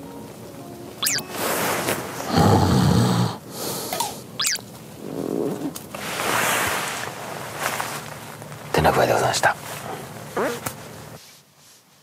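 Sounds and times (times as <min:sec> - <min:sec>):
high sweeping chirps: 0:01.0 - 0:01.6, 0:04.4 - 0:04.6
breathy noise: 0:01.6 - 0:04.4
person snoring: 0:02.2 - 0:04.0.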